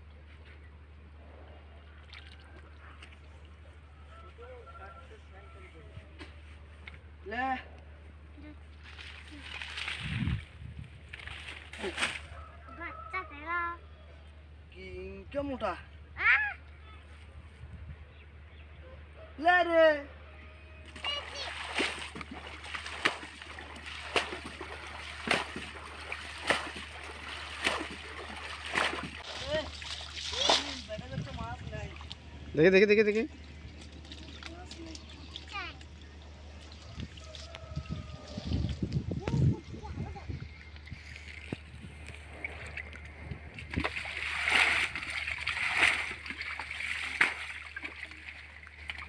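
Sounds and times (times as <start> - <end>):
water splashing from bailing pot: 8.8 - 12.4, 20.9 - 32.2, 41.2 - 49.0.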